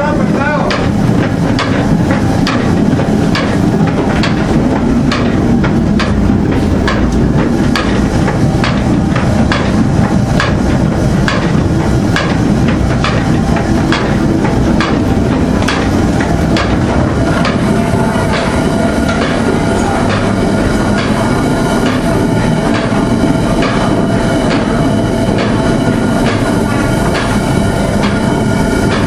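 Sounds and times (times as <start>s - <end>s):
windmill machinery rumbling: 0.0s - 29.0s
regular mechanical knock: 0.6s - 17.7s.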